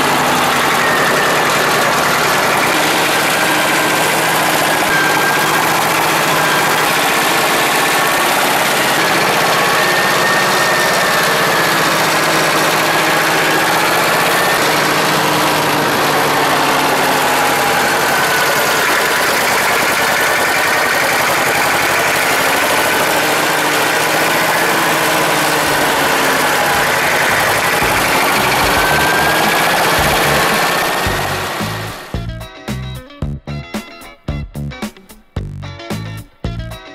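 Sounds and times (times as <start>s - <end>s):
diesel tractor engine running: 0.0s - 33.7s.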